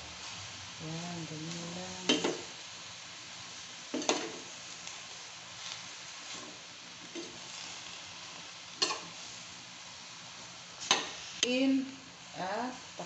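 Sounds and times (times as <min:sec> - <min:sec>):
cabbage sizzling in a pan: 0:00.0 - 0:13.0
metal spoon scraping a pan: 0:05.6 - 0:09.2.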